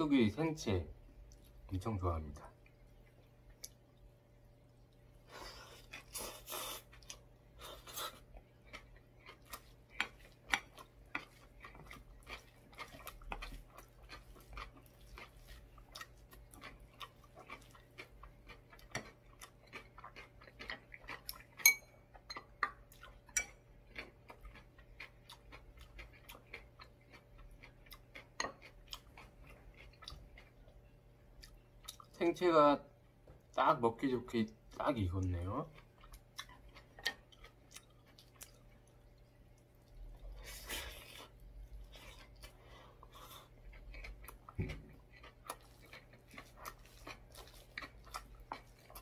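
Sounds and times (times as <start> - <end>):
chewing: 2.5 - 32.2, 34.5 - 49.0
chopsticks on crunchy food: 5.4 - 21.6, 40.4 - 49.0.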